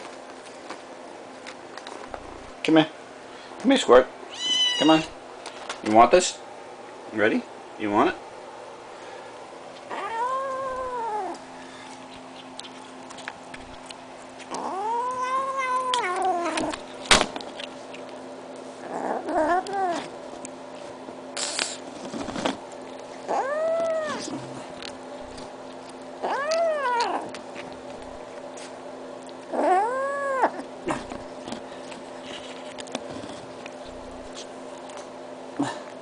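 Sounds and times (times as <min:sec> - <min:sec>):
kitten yowling: 0:04.3 - 0:05.1, 0:09.9 - 0:11.4, 0:14.5 - 0:16.8, 0:18.9 - 0:20.1, 0:23.3 - 0:24.3, 0:26.2 - 0:27.4, 0:29.5 - 0:30.7.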